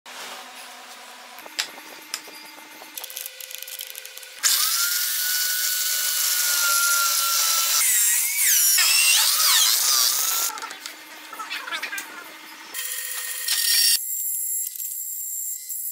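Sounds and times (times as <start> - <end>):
electric drill cutting wood: 1.5 - 10.5, 12.6 - 15.9.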